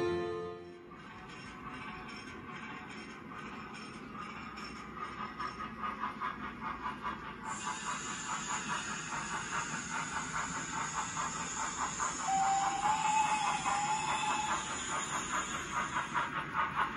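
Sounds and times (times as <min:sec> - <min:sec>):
model steam locomotive chuffing: 0:00.8 - 0:16.9
steam hiss: 0:05.0 - 0:16.9
steady train whistle: 0:12.1 - 0:15.4.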